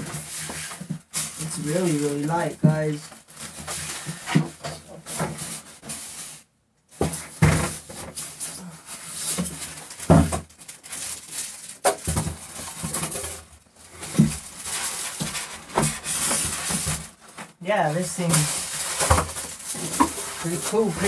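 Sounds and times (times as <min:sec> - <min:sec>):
plastic rubbing: 0:00.0 - 0:21.0
plastic casing knocks and bumps: 0:09.4 - 0:10.5, 0:11.8 - 0:17.6.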